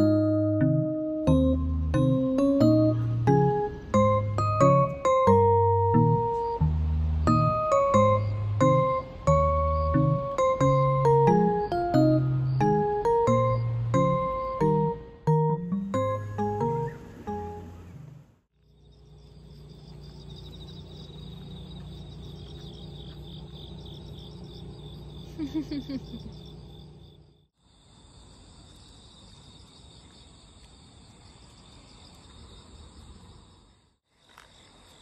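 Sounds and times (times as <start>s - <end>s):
shrill insect chorus: 18.6s - 35.0s.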